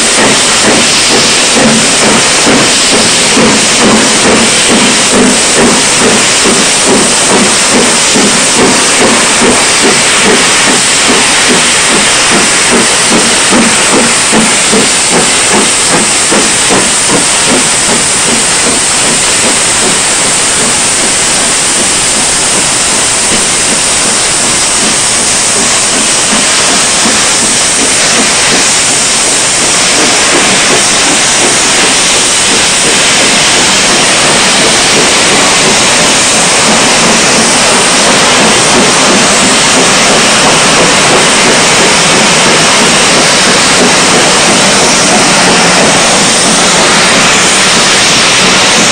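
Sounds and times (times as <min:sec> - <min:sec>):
steam hissing: 0:00.0 - 0:48.9
steam locomotive exhaust beats: 0:00.0 - 0:48.9.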